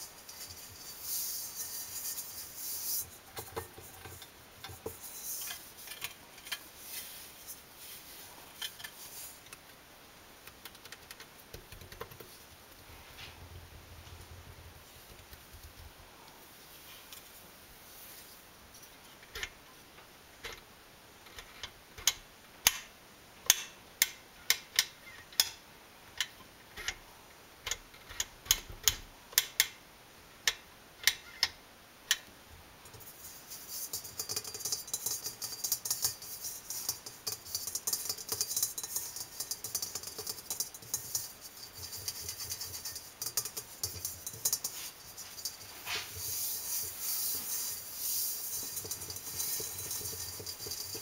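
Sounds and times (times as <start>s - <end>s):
scratching and rubbing on metal: 0.0s - 9.6s, 32.9s - 51.0s
fingers tapping on metal: 33.9s - 45.7s.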